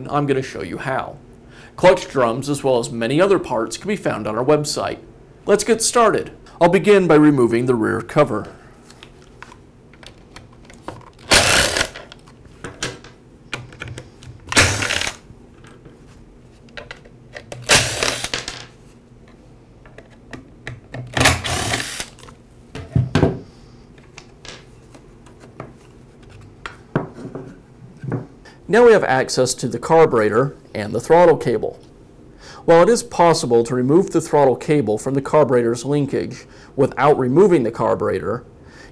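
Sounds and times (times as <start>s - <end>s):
cordless screwdriver whirring: 11.3s - 12.0s, 14.6s - 15.2s, 21.2s - 22.2s.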